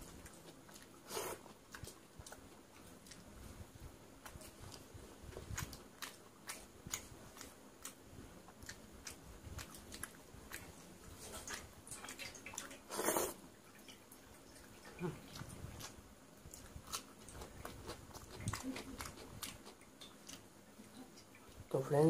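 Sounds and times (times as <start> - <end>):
wet chewing squelches: 0.0 - 21.8.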